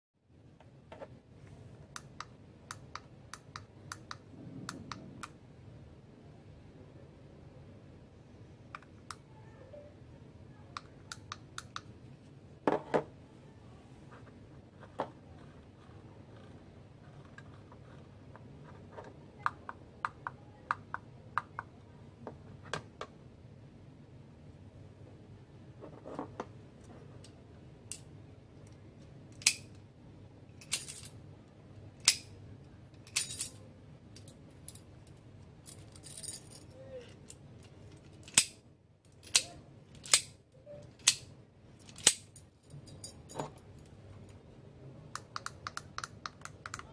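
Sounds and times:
metallic lock clicks: 29.4 - 29.8, 32.0 - 32.3, 38.2 - 38.6, 39.2 - 42.3.

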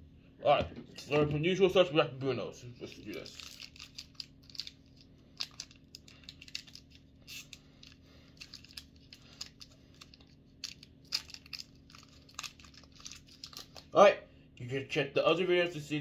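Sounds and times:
foil wrapper crackling: 2.9 - 13.9.

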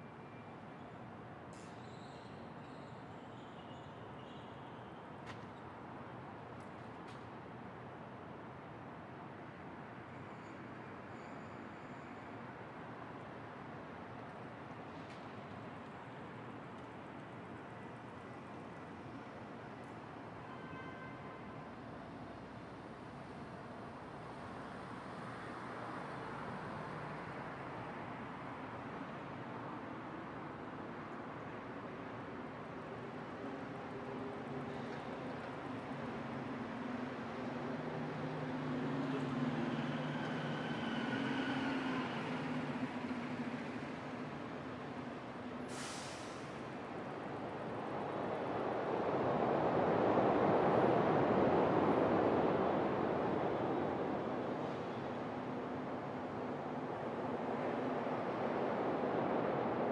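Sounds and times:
distant traffic hum: 22.0 - 59.9.

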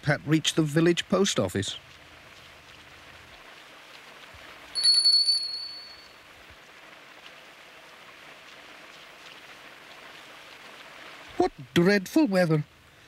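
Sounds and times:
rain hiss: 0.0 - 13.0
shop doorbell ringing: 4.8 - 6.1.

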